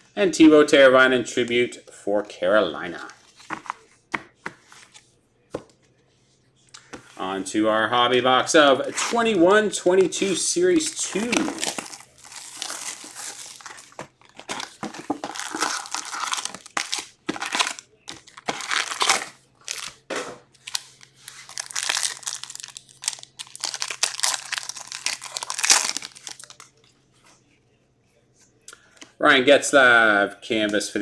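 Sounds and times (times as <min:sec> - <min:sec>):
foil wrappers crinkling and tearing: 0:10.8 - 0:20.0, 0:20.6 - 0:26.7.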